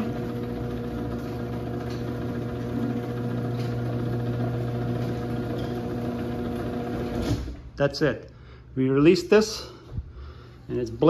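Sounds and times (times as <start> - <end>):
garage door opener humming: 0.0 - 7.7.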